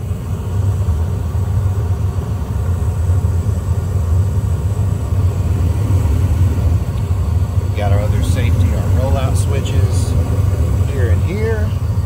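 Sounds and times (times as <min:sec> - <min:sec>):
furnace low rumble: 0:00.0 - 0:12.0.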